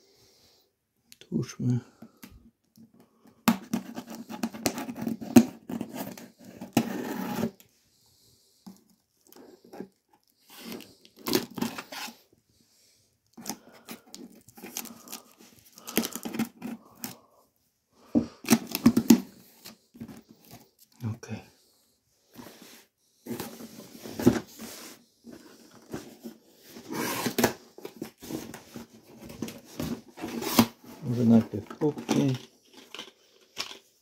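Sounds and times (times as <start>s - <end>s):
cardboard box rustling and scraping: 3.8s - 7.6s, 10.5s - 12.2s, 23.2s - 32.4s.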